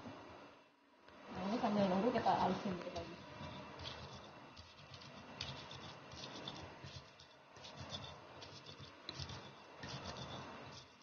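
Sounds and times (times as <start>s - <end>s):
pestle scraping in stone mortar: 2.9s - 11.0s.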